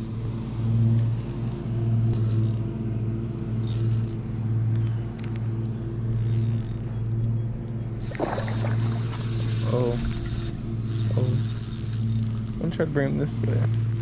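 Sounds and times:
low motor-like hum: 0.0s - 14.0s
fish splashing: 8.0s - 10.5s.

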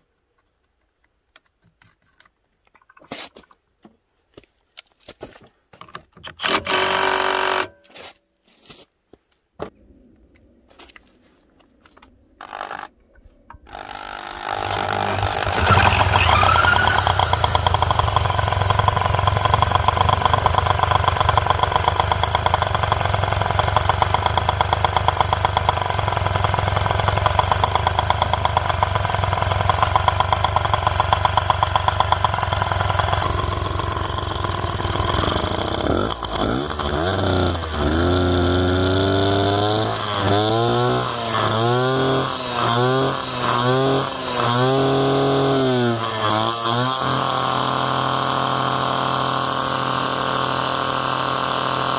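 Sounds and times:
scooter engine revving: 13.6s - 51.9s.

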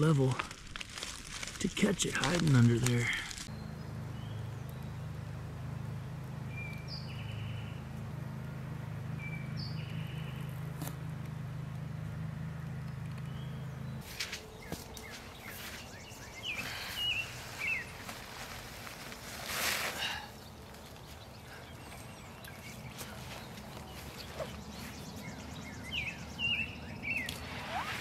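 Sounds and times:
leaf litter rustling and crunching: 0.0s - 3.5s, 14.0s - 21.3s
small birds chirping: 1.7s - 28.0s.

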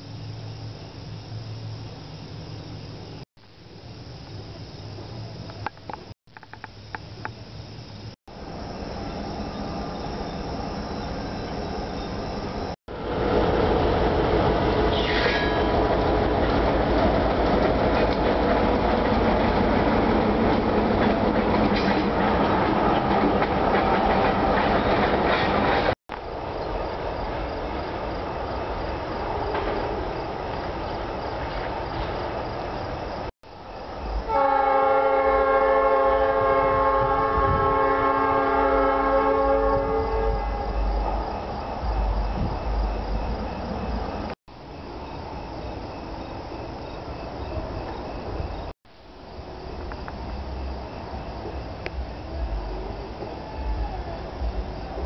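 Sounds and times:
vehicle rumbling: 40.4s - 55.0s.

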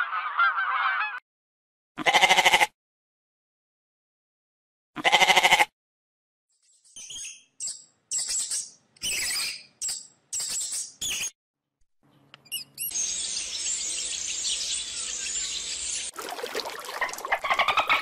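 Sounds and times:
goat bleating: 2.0s - 2.7s, 5.0s - 5.7s
birds chirping: 12.1s - 18.0s.

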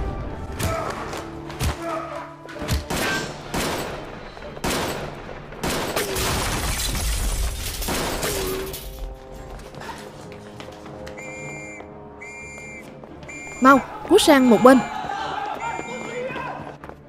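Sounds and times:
gunshots: 2.6s - 8.6s.

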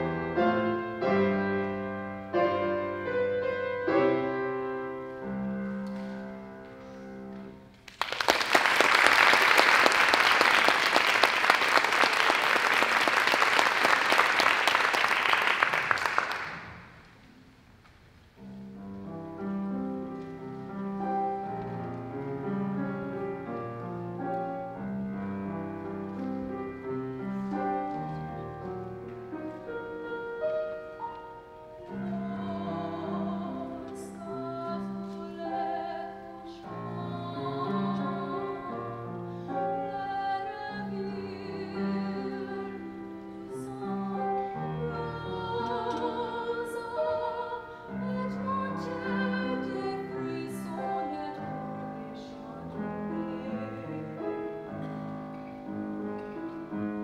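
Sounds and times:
grand piano playing classical chords: 0.0s - 7.8s, 18.4s - 57.0s
applause: 7.8s - 17.0s.

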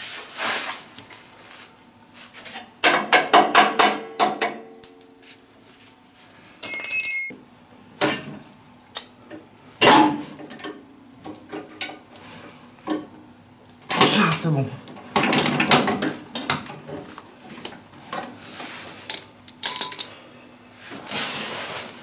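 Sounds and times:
high-pitched metallic ring: 6.6s - 7.3s.

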